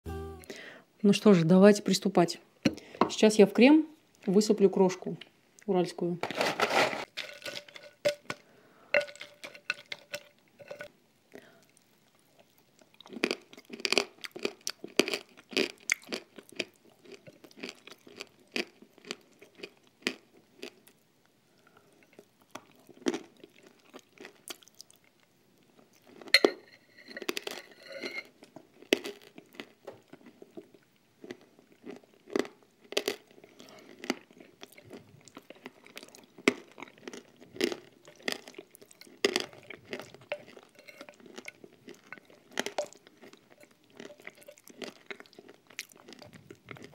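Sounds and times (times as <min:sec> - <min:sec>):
chewing and crunching: 0:06.4 - 0:08.4, 0:09.0 - 0:10.9, 0:11.6 - 0:21.0, 0:21.6 - 0:46.9
metal spoon clinking on glass bowl: 0:26.4 - 0:28.3, 0:40.2 - 0:44.6.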